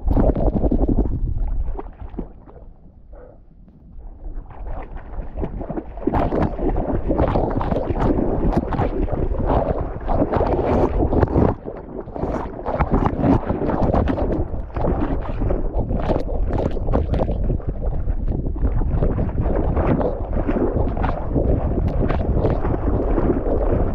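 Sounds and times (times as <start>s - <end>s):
water splashing and rushing: 0.0s - 2.8s, 3.9s - 23.9s
wind buffeting microphone: 2.8s - 23.9s.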